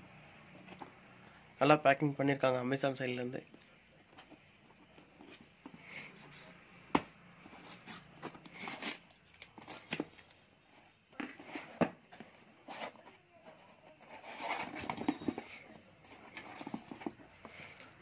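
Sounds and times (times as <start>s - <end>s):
tape and cardboard scraping: 7.4s - 10.4s, 13.6s - 17.6s.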